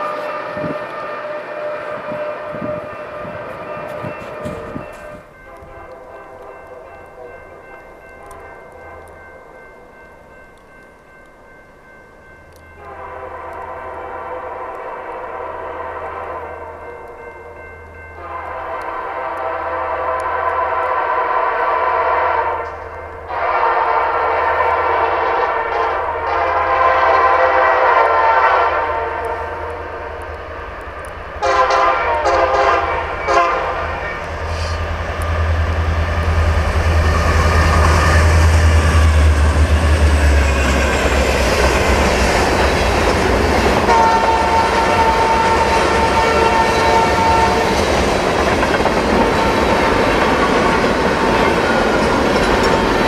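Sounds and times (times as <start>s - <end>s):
locomotive air horn blasts: 0.0s - 6.1s, 12.8s - 16.8s, 18.2s - 30.1s, 31.4s - 34.9s, 43.8s - 47.9s
diesel locomotives rumbling: 0.0s - 11.4s, 12.0s - 53.0s.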